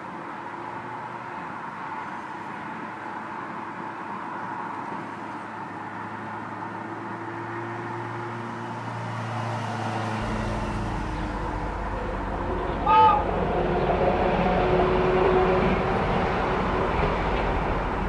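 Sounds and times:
vehicle running with low hum: 0:00.0 - 0:18.0
deep rumble: 0:10.2 - 0:18.0.

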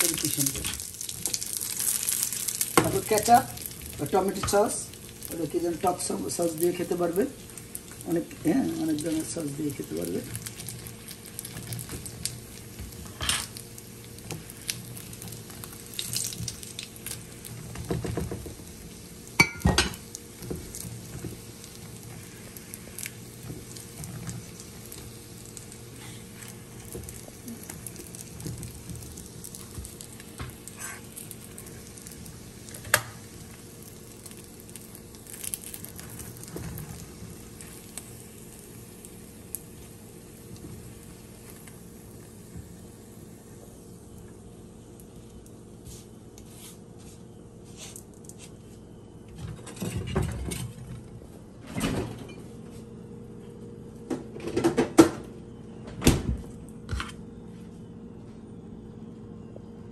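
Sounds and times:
pastries sizzling in oil: 0:00.0 - 0:46.8.

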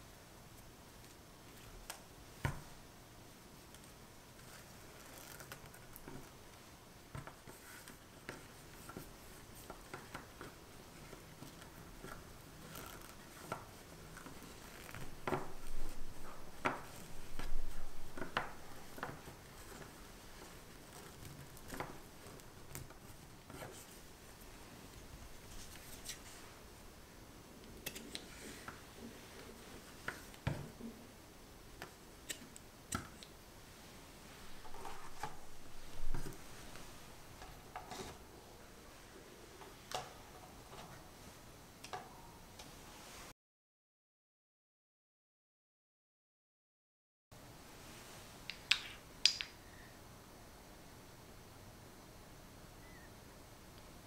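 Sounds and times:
satin ribbon rustling: 0:03.5 - 0:06.7, 0:07.4 - 0:26.8, 0:33.6 - 0:39.8.

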